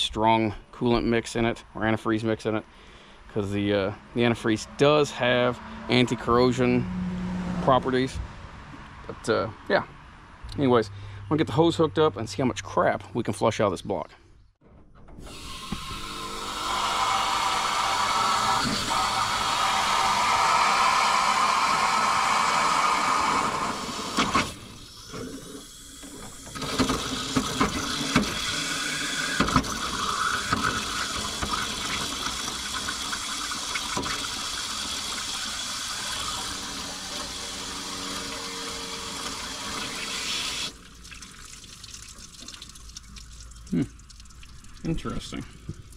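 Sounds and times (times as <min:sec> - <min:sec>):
water rushing from a hose: 0:15.3 - 0:45.9.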